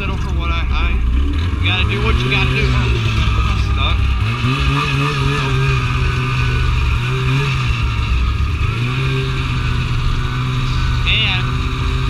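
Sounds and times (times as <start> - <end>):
snowmobile engine revving: 0.0 - 12.0.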